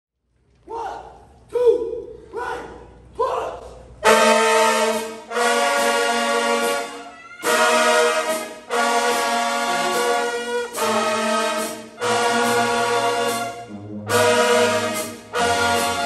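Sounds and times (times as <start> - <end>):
marching band brass chords: 3.8 - 16.0.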